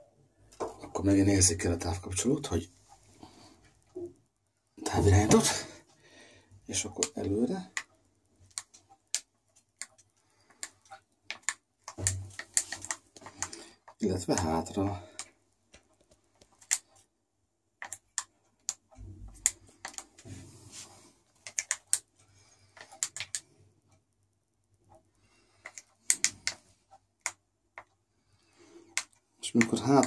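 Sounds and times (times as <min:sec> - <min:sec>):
remote control buttons clicking: 0:17.8 - 0:20.1, 0:21.4 - 0:22.1, 0:22.8 - 0:23.5, 0:25.6 - 0:26.6.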